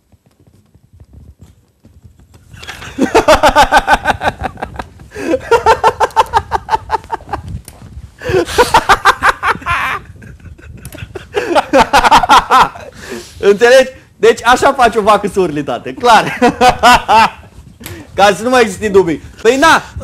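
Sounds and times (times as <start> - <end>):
man laughing hard: 2.6 - 7.5, 8.2 - 13.1, 16.0 - 17.5.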